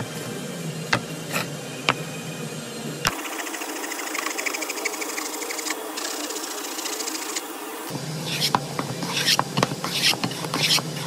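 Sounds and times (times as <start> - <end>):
hand plane shaving wood: 3.2 - 7.4, 8.3 - 11.0.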